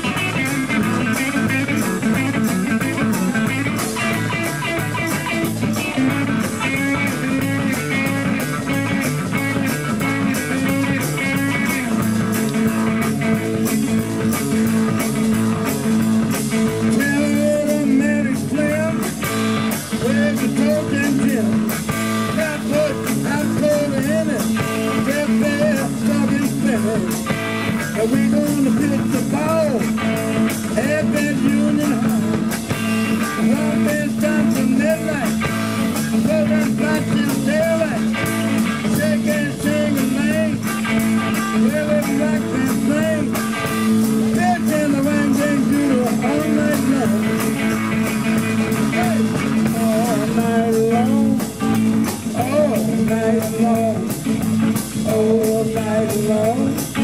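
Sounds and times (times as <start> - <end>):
drum kit beat: 0.0 - 57.0
electric bass: 0.0 - 57.0
electric guitar: 0.0 - 57.0
man singing: 0.0 - 57.0.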